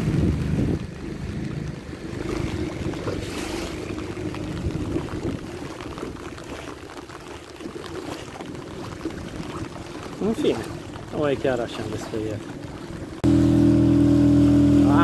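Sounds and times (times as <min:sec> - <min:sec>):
wind on microphone: 0:00.0 - 0:06.9
boat motor running: 0:00.0 - 0:15.0
water splashing against hull: 0:00.0 - 0:15.0.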